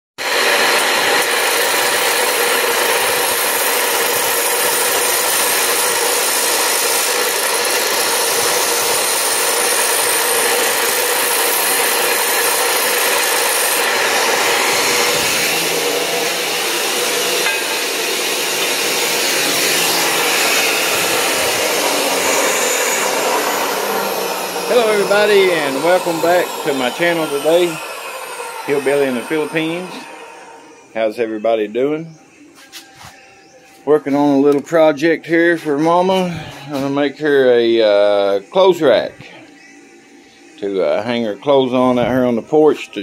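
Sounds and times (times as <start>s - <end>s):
chop saw grinding metal pipe: 0.2s - 31.2s.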